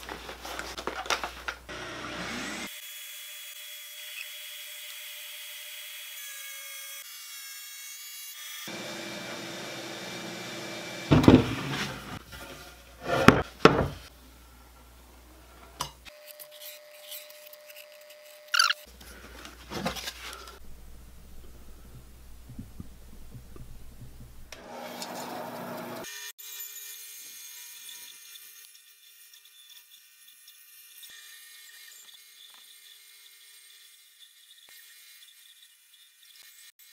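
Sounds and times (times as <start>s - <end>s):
drum sander running: 1.7s - 2.7s, 8.7s - 12.2s, 23.2s - 26.0s
bandsaw running: 1.7s - 2.8s, 8.6s - 12.3s, 24.5s - 26.3s
wood knocking: 11.1s - 11.6s, 13.1s - 14.0s.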